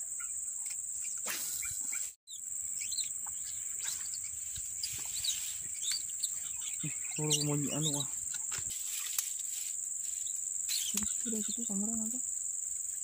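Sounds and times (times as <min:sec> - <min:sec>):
bird chirps: 0:00.0 - 0:13.0
insects droning: 0:00.0 - 0:13.0.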